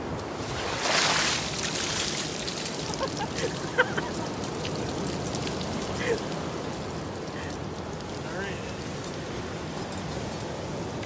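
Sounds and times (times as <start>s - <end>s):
water splashing onto wet sand: 0.4s - 6.8s.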